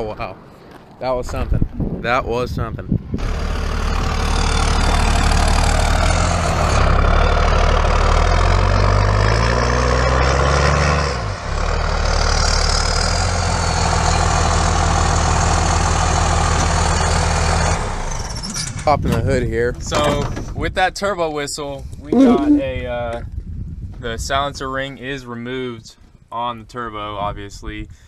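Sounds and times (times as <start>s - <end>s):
diesel truck engine: 3.1s - 19.0s
turbo whistle: 22.1s - 22.7s.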